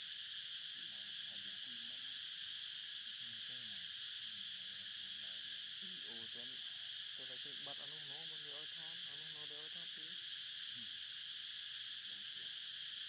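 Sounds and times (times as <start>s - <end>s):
forest insects chorus: 0.0s - 13.0s
faint distant voices talking: 0.8s - 2.1s, 3.2s - 6.6s.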